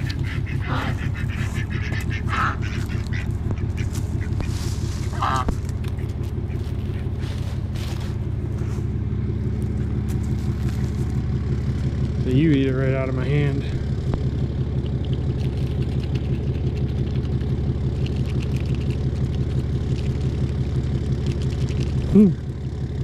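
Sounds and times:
ducks quacking: 0:00.0 - 0:07.6
steady low hum: 0:00.0 - 0:23.0.

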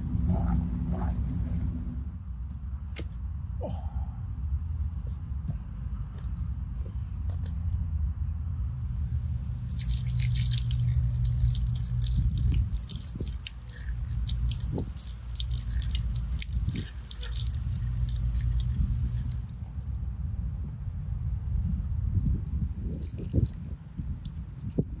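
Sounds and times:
water dripping and splashing: 0:09.2 - 0:20.0, 0:22.5 - 0:25.0.

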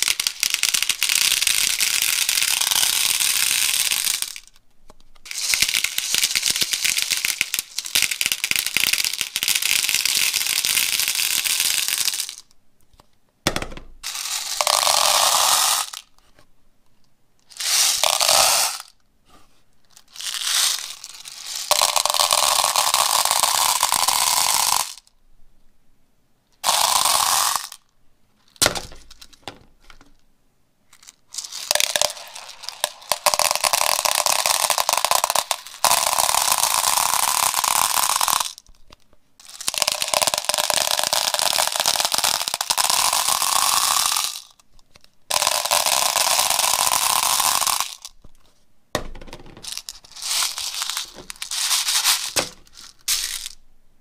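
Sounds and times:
noisy bursts from squeezed toys: 0:14.0 - 0:16.1, 0:17.4 - 0:19.0, 0:20.0 - 0:25.1, 0:26.6 - 0:27.8, 0:30.9 - 0:38.7, 0:39.4 - 0:44.6, 0:45.3 - 0:48.2, 0:49.6 - 0:53.6.

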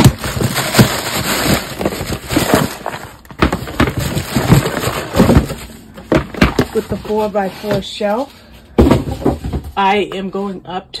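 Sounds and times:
cardboard rustling and scraping: 0:00.0 - 0:10.0
boxes knocking on table: 0:01.8 - 0:07.9, 0:08.8 - 0:09.8.

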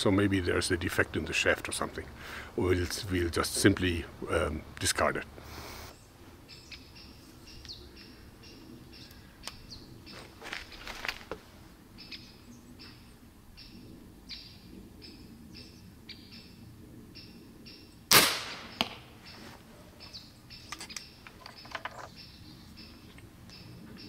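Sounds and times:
birds chirping: 0:00.0 - 0:24.0
airgun shot crack: 0:18.1 - 0:19.1
arrow striking target: 0:18.1 - 0:19.1.

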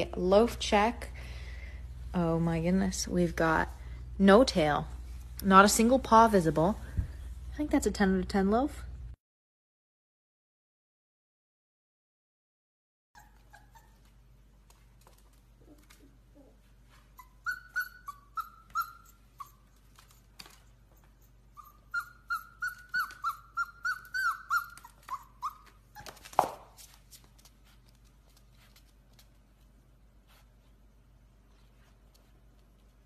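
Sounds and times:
puppy whining and yelping: 0:13.2 - 0:14.4, 0:15.6 - 0:26.4.

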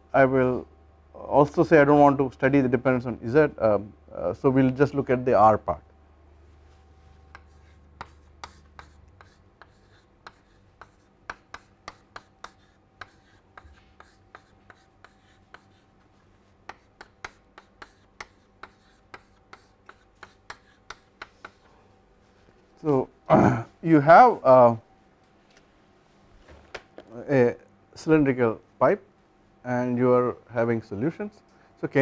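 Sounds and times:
chalk writing on a blackboard: 0:07.0 - 0:21.8.

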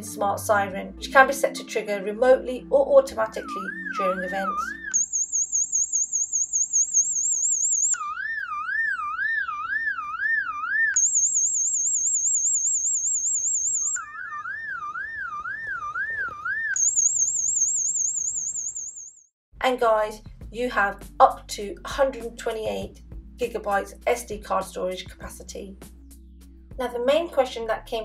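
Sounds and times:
warbling siren: 0:03.2 - 0:19.2.

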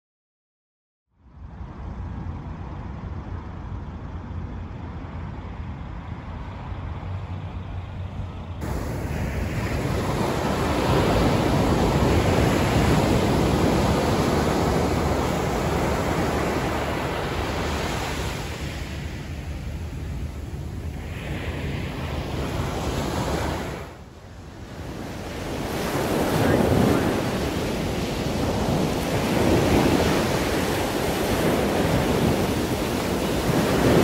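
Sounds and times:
wind rumbling on microphone: 0:01.2 - 0:34.0
ocean surf breaking on beach: 0:08.6 - 0:34.0.

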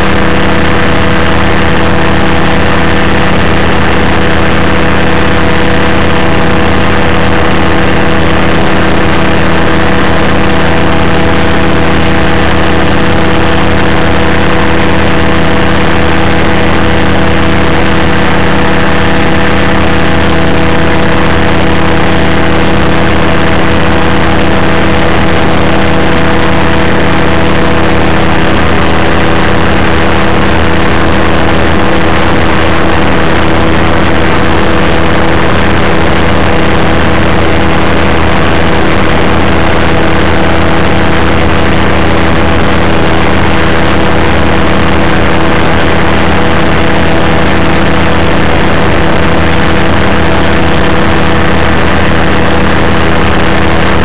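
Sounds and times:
aircraft engine and propeller: 0:00.0 - 0:54.0.

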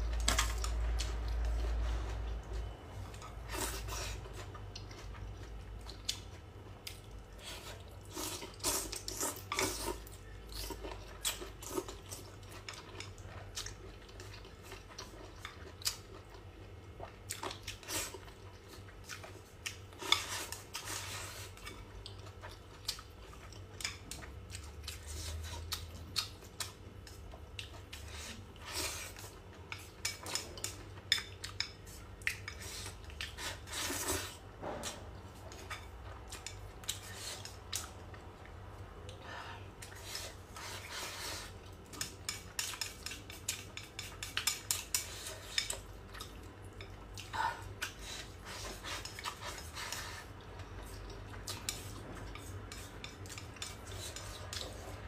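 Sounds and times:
chewing: 0:00.1 - 0:55.0.

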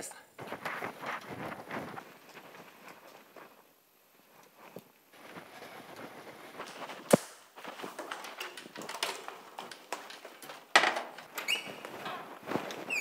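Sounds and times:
footsteps on metal ladder: 0:04.7 - 0:13.0.

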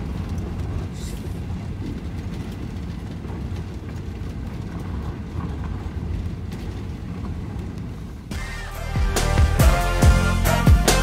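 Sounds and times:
gravel crunching under wheels: 0:00.0 - 0:08.4
engine and tyres rumbling: 0:00.0 - 0:11.0.

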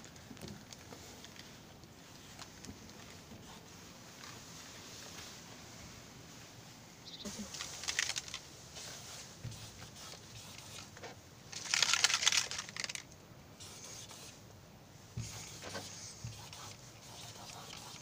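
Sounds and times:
marker squeaking on writing board: 0:15.2 - 0:18.0.

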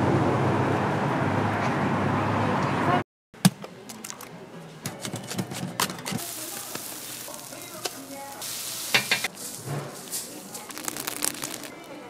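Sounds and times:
margarine sizzling on griddle: 0:06.2 - 0:12.0.

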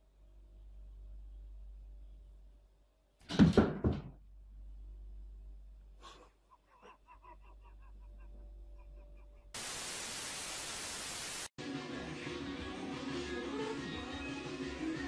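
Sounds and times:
static hiss: 0:09.6 - 0:11.5.

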